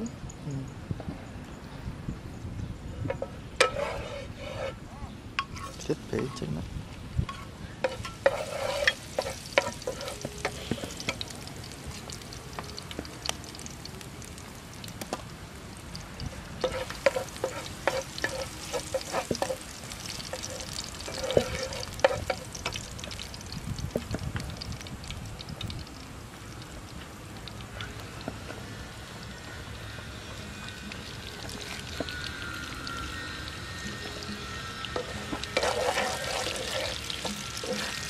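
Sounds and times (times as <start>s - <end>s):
spatula clinking and scraping pan: 3.1s - 4.8s, 5.4s - 6.4s, 7.3s - 11.3s, 16.6s - 22.8s, 34.0s - 38.0s
garlic sizzling in a frying pan: 3.6s - 4.7s, 5.4s - 6.4s, 7.1s - 38.0s.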